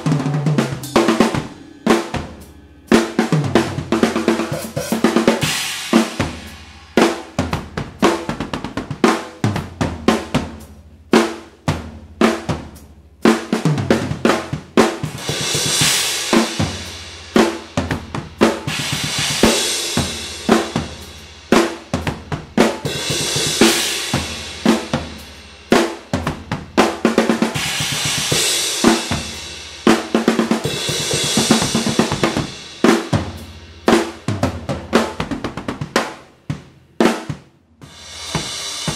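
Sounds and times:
cymbal crashes: 0:00.0 - 0:07.3
bass drum: 0:00.0 - 0:38.9
snare and tom fills: 0:00.0 - 0:38.9.

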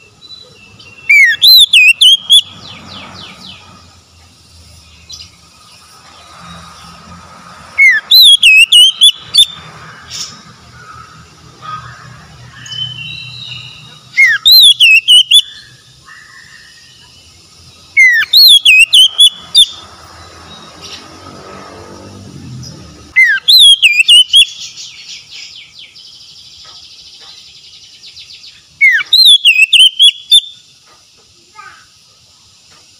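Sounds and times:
bird singing ringing phrases: 0:00.0 - 0:03.8, 0:07.8 - 0:21.0, 0:22.6 - 0:30.8
faint bird chirps: 0:23.1 - 0:30.8.

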